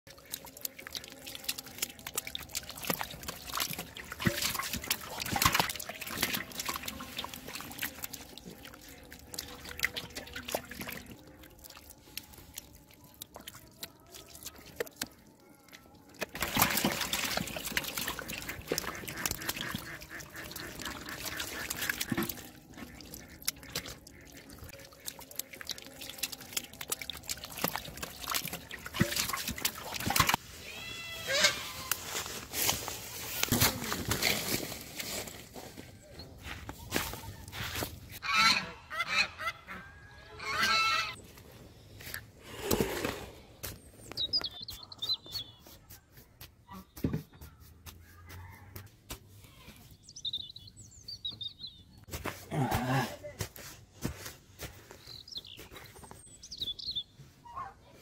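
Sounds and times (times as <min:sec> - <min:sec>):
fish flopping on wet mud: 0:00.1 - 0:30.4.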